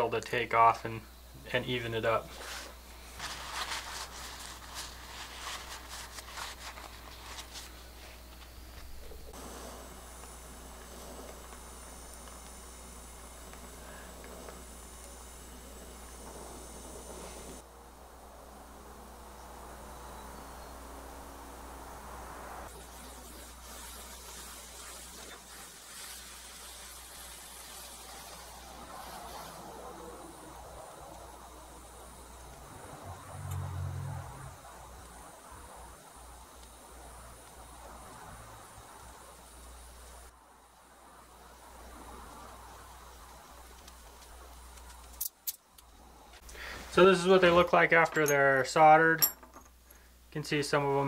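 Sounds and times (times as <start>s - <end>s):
low steady hum: 0.0s - 23.8s
gas torch flame hissing: 0.9s - 17.7s, 18.4s - 40.4s, 41.3s - 48.8s
cloth rubbing on steel blade: 2.3s - 9.8s.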